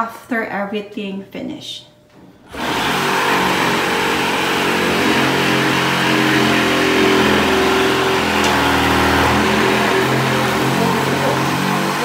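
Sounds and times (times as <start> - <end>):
power tool running: 2.4 - 12.0.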